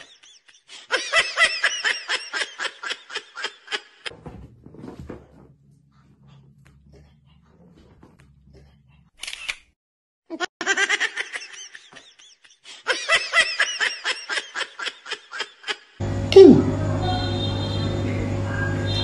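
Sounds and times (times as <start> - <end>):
laughter in rapid bursts: 0.0 - 4.1, 10.4 - 16.0.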